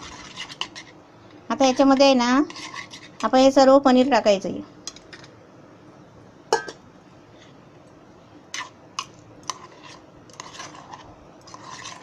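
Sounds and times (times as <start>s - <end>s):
metal spoon clinking on pot: 6.5s - 6.8s.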